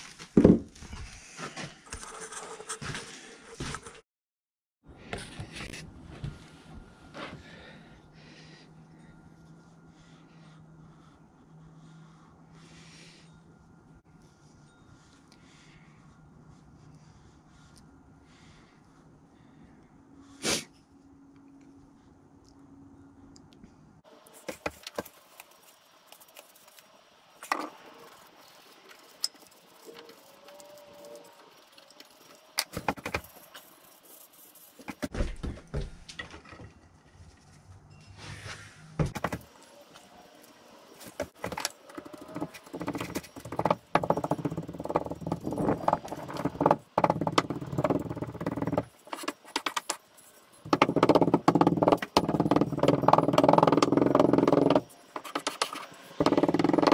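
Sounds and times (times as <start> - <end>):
taps and scrapes: 31.8 - 33.7, 41.0 - 56.9.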